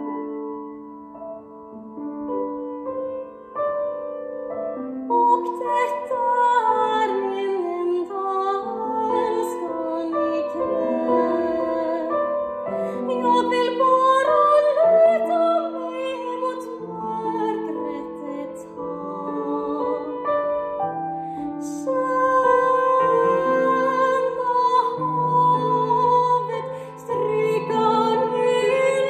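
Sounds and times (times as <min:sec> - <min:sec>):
grand piano accompaniment: 0:00.0 - 0:29.0
woman singing operatically: 0:05.1 - 0:12.1, 0:12.9 - 0:20.2, 0:21.6 - 0:29.0.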